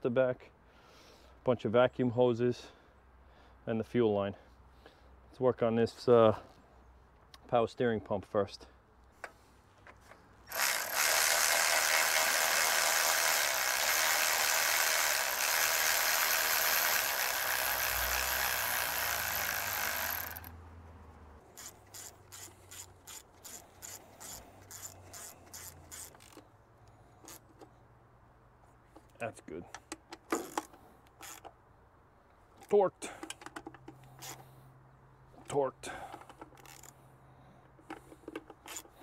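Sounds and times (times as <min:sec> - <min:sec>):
ratchet wrench clicking: 0:10.5 - 0:20.5, 0:21.5 - 0:26.4, 0:27.2 - 0:27.6, 0:29.9 - 0:31.5, 0:36.3 - 0:37.0, 0:37.9 - 0:39.0.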